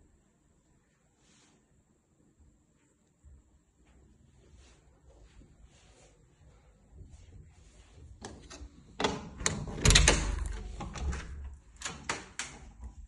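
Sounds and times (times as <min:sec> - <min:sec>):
door latch clicks and knocks: 0:08.4 - 0:12.6.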